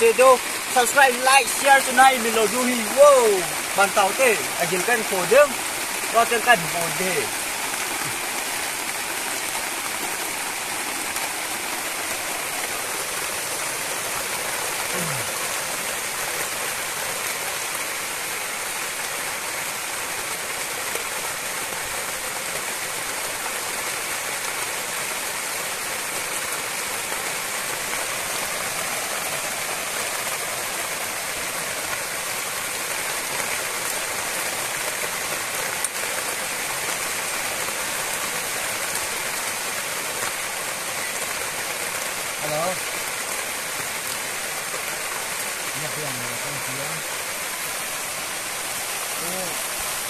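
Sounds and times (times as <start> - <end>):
flowing water rushing: 0.0 - 50.0.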